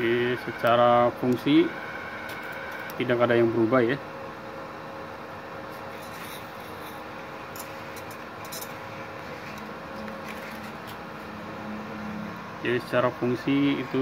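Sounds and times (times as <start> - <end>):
welder cooling fan humming: 0.0 - 14.0.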